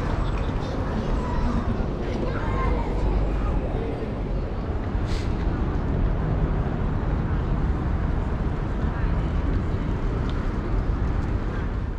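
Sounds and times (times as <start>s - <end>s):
heavy low rumble: 0.0s - 8.8s
passers-by's voices: 0.0s - 11.9s
traffic: 0.0s - 11.9s.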